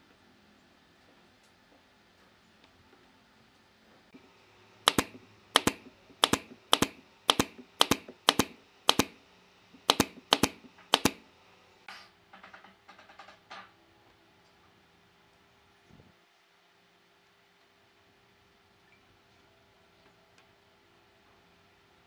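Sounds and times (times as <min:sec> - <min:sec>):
nail gun firing into wood: 0:04.9 - 0:09.2, 0:09.8 - 0:11.3.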